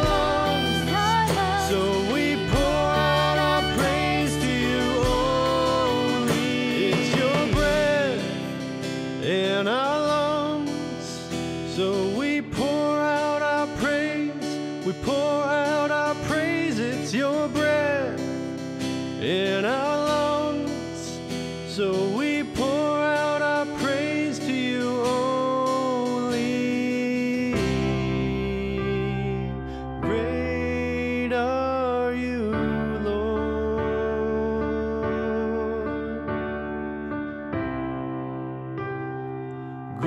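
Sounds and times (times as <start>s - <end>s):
person singing: 0.0s - 18.5s, 19.2s - 36.8s
strummed acoustic guitar: 0.0s - 31.4s.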